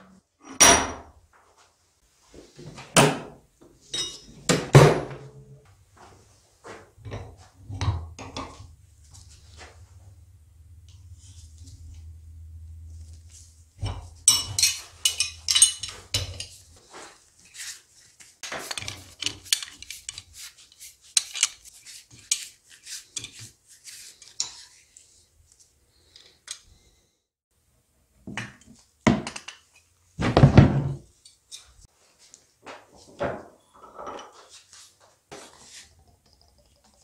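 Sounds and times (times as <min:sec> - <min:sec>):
spanners clinking on metal: 0:03.9 - 0:04.4, 0:13.8 - 0:16.6.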